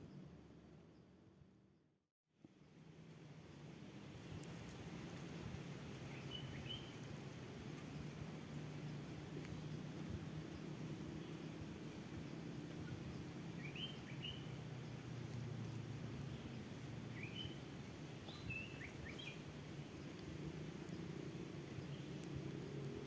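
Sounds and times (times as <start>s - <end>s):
low outdoor hum: 2.4s - 23.0s
small birds chirping: 5.8s - 23.0s.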